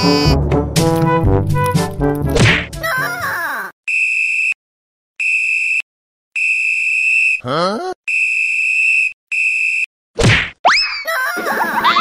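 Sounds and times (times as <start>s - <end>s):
sliding vocal sound: 7.4s - 8.0s.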